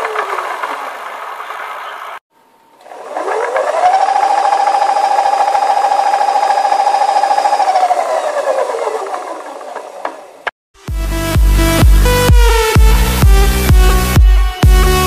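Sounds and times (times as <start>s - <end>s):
electric motor whine: 2.8s - 10.5s.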